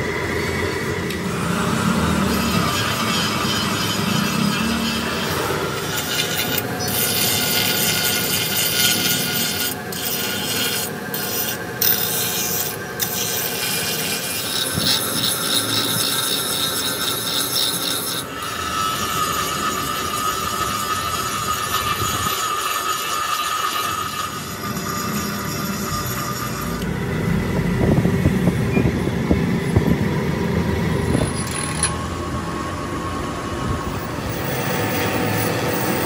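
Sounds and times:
steady high whine: 0.0 - 13.5, 24.0 - 36.0
tools scraping on metal: 2.2 - 26.9, 31.0 - 32.0.

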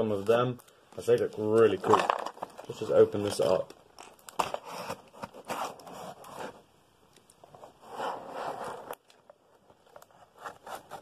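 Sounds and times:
cardboard box being cut and torn: 4.4 - 6.6.

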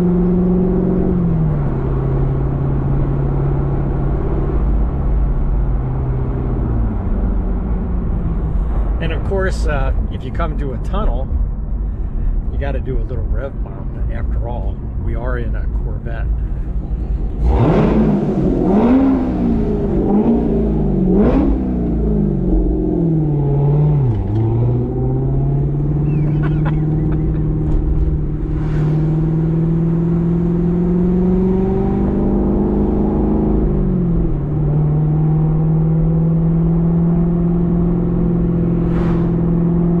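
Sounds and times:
car engine revving: 15.6 - 40.0
car accelerating through gear shifts: 17.4 - 40.0.

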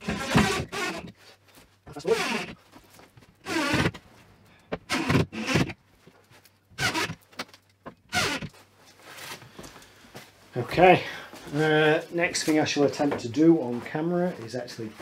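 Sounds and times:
cordless drill driving screws: 0.0 - 1.1, 2.0 - 2.6, 3.4 - 3.9, 4.8 - 5.8, 6.8 - 7.2, 8.1 - 8.5.

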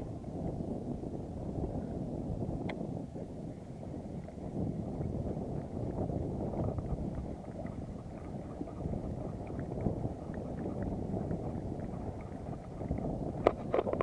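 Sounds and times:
wind on microphone: 0.0 - 14.0
water washing around boat: 3.2 - 14.0.

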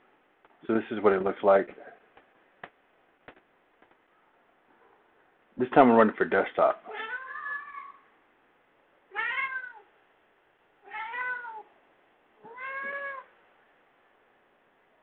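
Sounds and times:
cat meowing: 6.9 - 8.1, 9.1 - 9.9, 10.8 - 11.7, 12.4 - 13.4.

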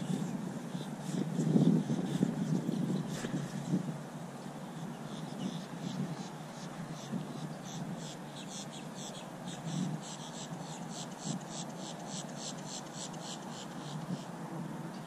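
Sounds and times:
insect chirping: 4.8 - 14.3.

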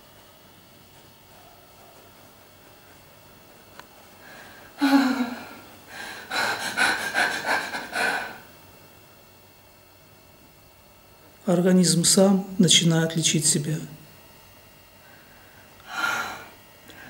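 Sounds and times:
quick pulsing breaths with whine: 0.0 - 9.3, 14.8 - 17.0
woman gasping: 4.2 - 8.4, 15.9 - 17.0.

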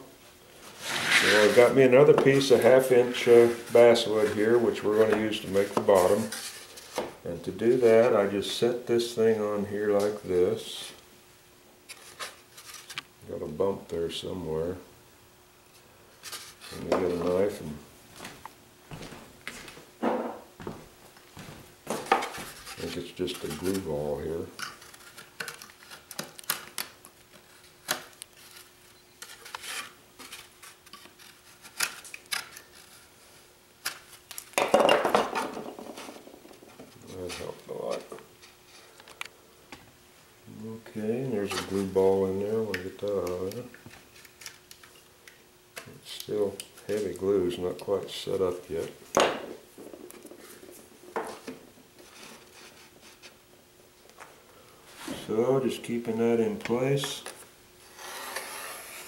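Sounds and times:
faint steady hum: 0.0 - 59.0
faint scraping: 0.6 - 5.0
wooden hull set down on workbench: 20.0 - 20.5, 34.6 - 36.2.

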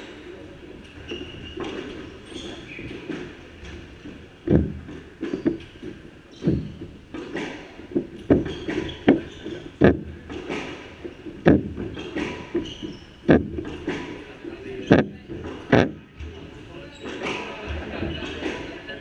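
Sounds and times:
sneakers squeaking: 0.0 - 19.0
feet pounding on wooden floor: 3.9 - 7.1, 7.9 - 10.3, 11.0 - 14.1, 14.9 - 16.4
ball thudding against walls: 4.5 - 14.2.

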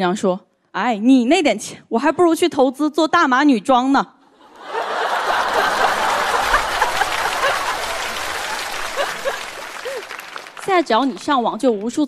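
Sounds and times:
audience laughing: 4.4 - 10.6
audience applauding: 4.5 - 12.0.

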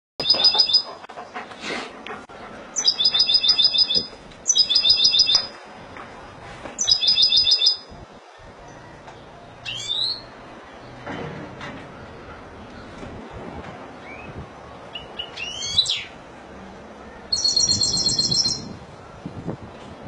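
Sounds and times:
bird trilled song: 0.2 - 0.9, 2.8 - 5.5, 6.8 - 7.8, 9.6 - 10.3, 14.0 - 16.1, 17.3 - 18.8.

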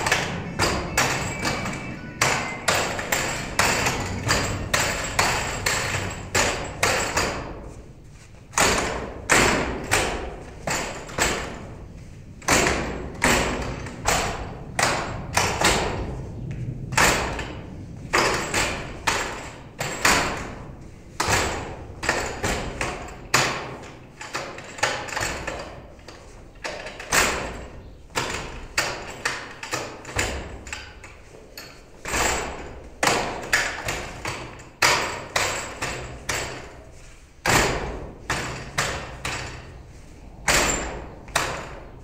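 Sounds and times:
hands striking wooden dummy: 0.0 - 11.8, 12.4 - 42.0.

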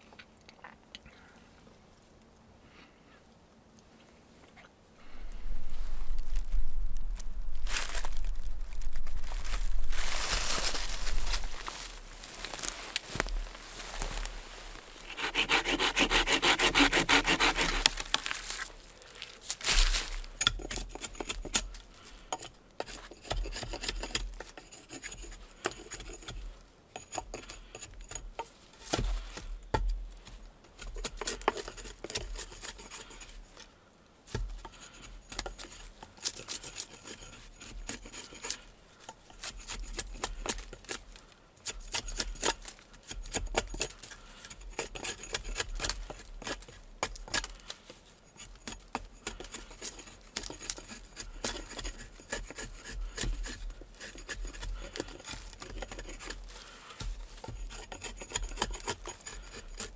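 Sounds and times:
scraping and rubbing strokes: 5.0 - 29.6, 34.4 - 41.0, 41.6 - 59.9.

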